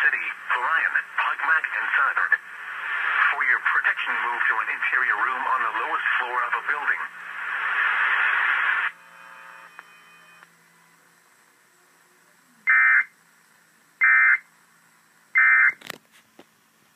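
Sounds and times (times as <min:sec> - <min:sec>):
radio hiss: 0:00.0 - 0:09.8.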